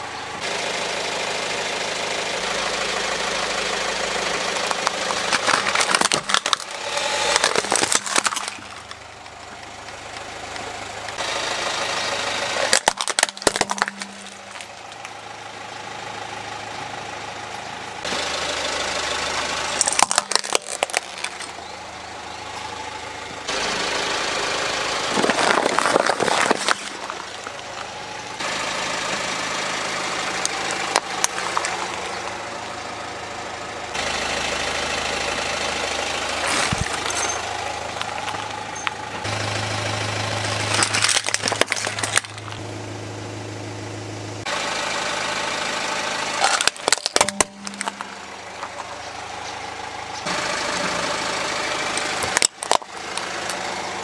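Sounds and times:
car engine idling: 0.0s - 54.0s
plastic toys cracking under tyre: 4.3s - 10.6s, 12.5s - 15.2s, 19.4s - 21.6s, 25.1s - 27.9s, 30.4s - 32.2s, 36.4s - 39.0s, 40.5s - 42.6s, 46.4s - 48.9s, 51.9s - 53.6s.

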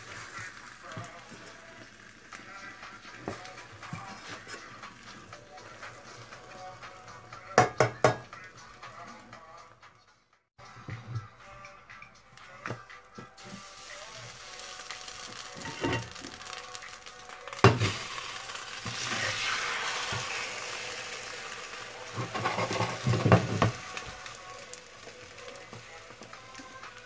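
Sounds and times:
omelette sizzling in oil: 0.0s - 6.8s, 13.4s - 27.0s.

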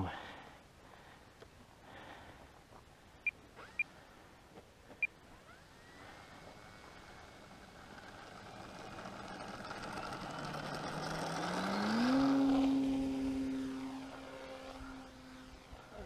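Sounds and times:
model plane motor and propeller: 3.4s - 4.2s, 5.0s - 16.0s.

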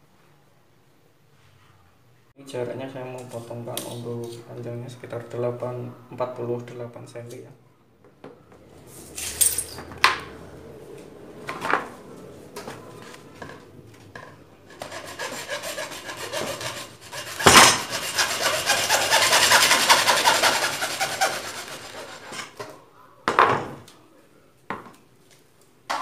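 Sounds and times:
hacksaw cutting plastic pipe: 14.7s - 22.6s.

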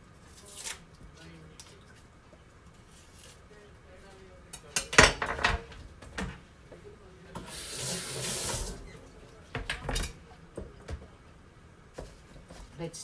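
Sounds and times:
kitchen tap running: 7.4s - 9.7s.

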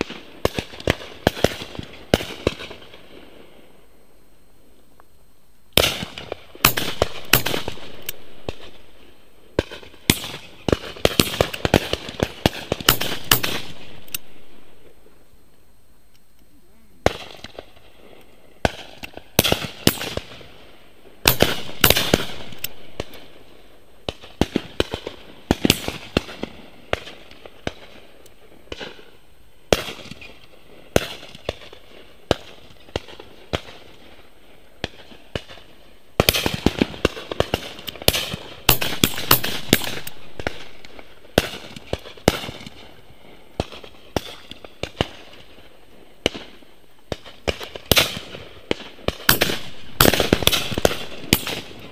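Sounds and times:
shotguns firing: 0.0s - 3.2s, 5.8s - 9.0s, 9.6s - 14.6s, 17.0s - 18.0s, 18.6s - 20.6s, 21.2s - 23.4s, 24.0s - 28.0s, 36.2s - 43.0s, 46.2s - 51.9s.

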